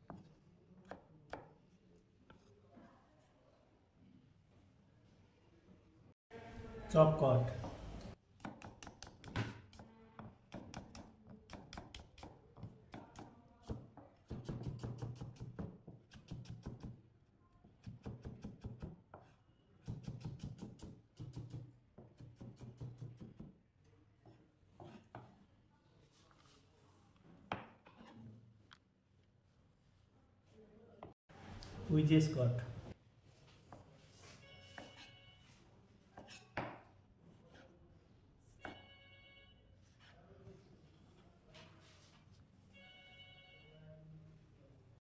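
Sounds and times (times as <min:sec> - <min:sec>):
knife chopping on cutting board: 0:08.4 - 0:09.8, 0:10.5 - 0:17.0.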